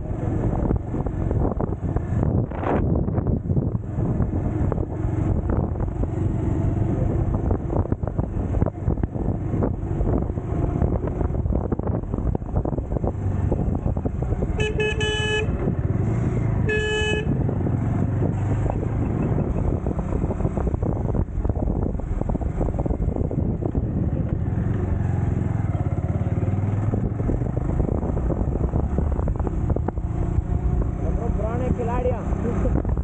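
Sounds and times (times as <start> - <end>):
motorcycle engine running: 0.0 - 33.0
wind and road noise: 0.0 - 33.0
horn beeping: 14.5 - 15.6, 16.6 - 17.4.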